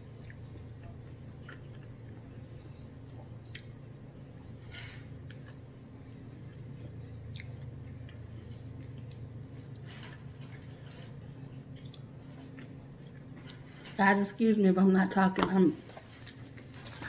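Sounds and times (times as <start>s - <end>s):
close chewing and mouth sounds: 0.0s - 3.8s, 5.2s - 14.0s, 15.8s - 17.0s
steady low hum: 0.0s - 17.0s.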